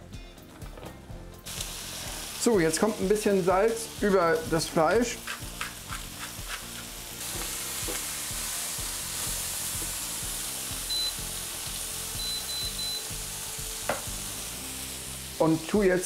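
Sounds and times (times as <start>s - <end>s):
food sizzling on a griddle: 1.4s - 16.0s
spatula scraping a griddle: 5.2s - 8.1s
hob touch control beeps: 10.9s - 11.2s, 12.2s - 13.0s.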